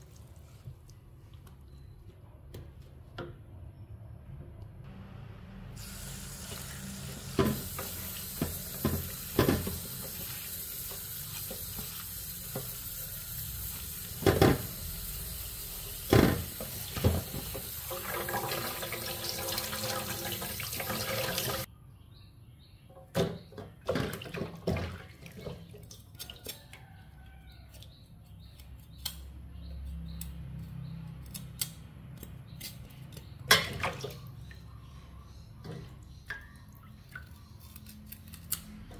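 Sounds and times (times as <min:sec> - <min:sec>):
tap water running into steel basin: 0:06.0 - 0:21.7.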